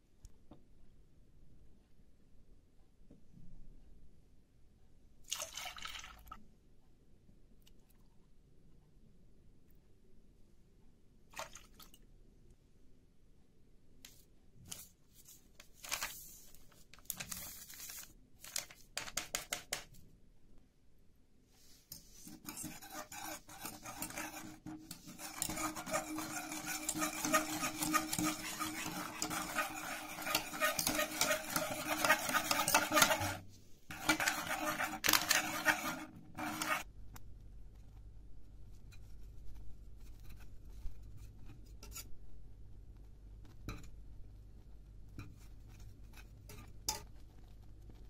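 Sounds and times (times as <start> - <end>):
whisk scraping a metal pot: 21.9 - 36.9, 45.2 - 47.2
powder pouring into a pot: 22.5 - 36.8.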